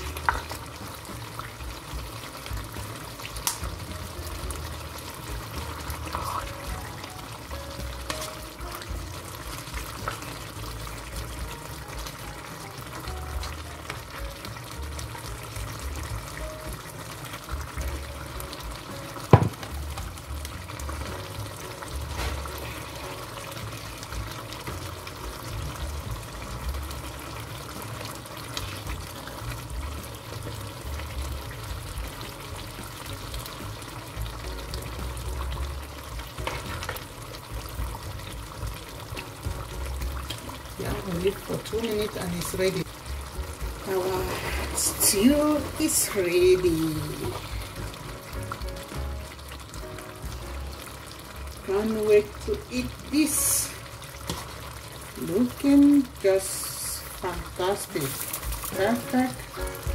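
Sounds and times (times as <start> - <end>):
stew sizzling in a frying pan: 0.0 - 59.9
spatula stirring: 3.7 - 7.1, 39.9 - 48.6, 53.6 - 55.6.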